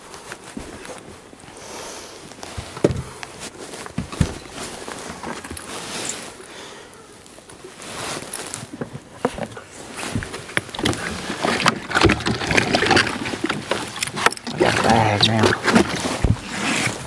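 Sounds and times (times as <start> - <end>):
light steady hiss: 0.0 - 11.6
knocks and thumps on boat deck: 2.6 - 3.2.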